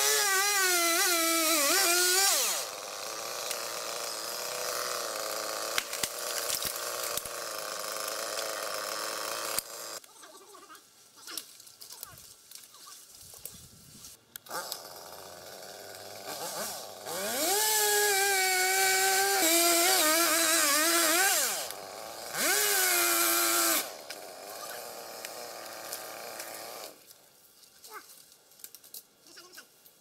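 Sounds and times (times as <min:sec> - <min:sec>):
chainsaw cutting wood: 0:00.0 - 0:10.1, 0:14.4 - 0:27.2.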